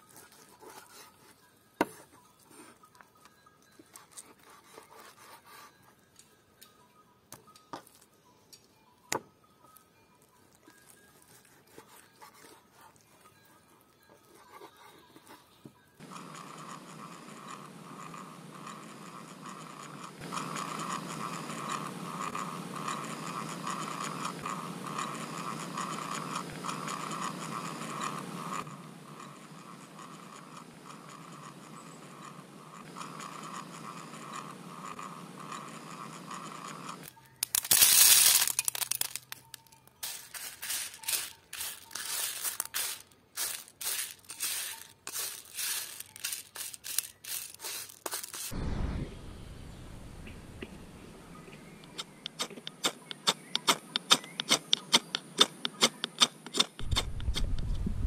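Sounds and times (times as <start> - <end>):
peas clicking and rattling: 36.9 - 48.5, 51.6 - 57.4
dried peas rushing in metal bowl: 40.0 - 48.5.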